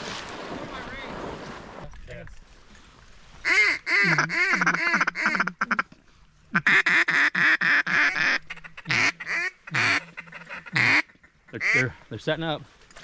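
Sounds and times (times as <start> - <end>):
duck call quacking: 3.4 - 5.9, 6.5 - 11.9.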